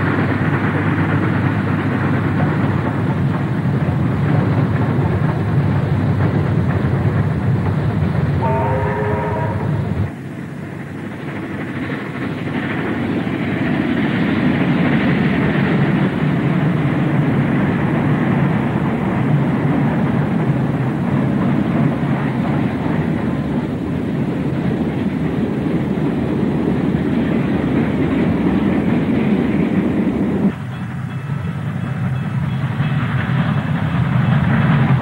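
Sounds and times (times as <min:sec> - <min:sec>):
steam locomotive rumble: 0:00.0 - 0:35.0.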